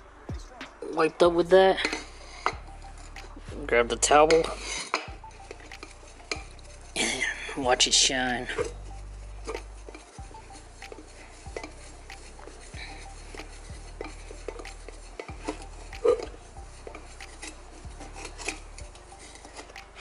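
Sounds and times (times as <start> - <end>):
cloth rubbing metal pipe: 0.0 - 20.0.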